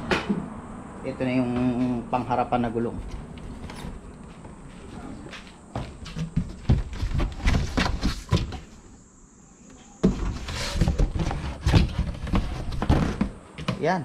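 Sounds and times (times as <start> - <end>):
knocks and rustling in cardboard box: 5.8 - 8.7, 10.0 - 13.8
cardboard flaps scraping: 5.9 - 8.8, 10.0 - 13.4.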